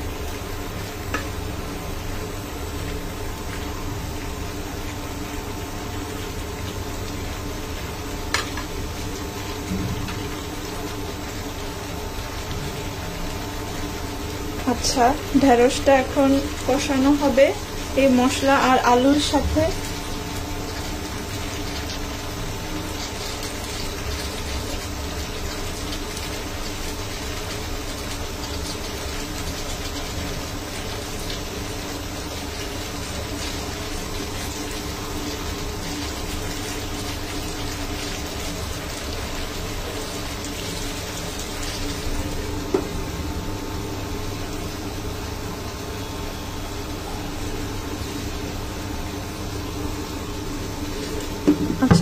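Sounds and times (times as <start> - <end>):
food sizzling in frying pan: 0.0 - 52.0
steady hum: 40.9 - 52.0.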